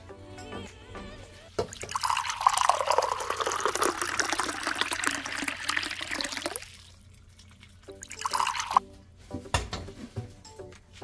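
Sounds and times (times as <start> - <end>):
broth pouring and splashing: 1.7 - 8.8.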